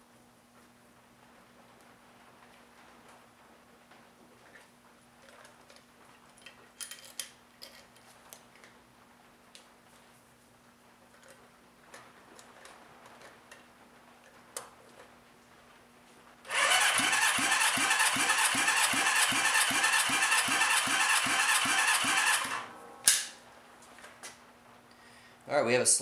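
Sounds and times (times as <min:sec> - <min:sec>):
engine cranking on electric starter: 0:16.5 - 0:22.7.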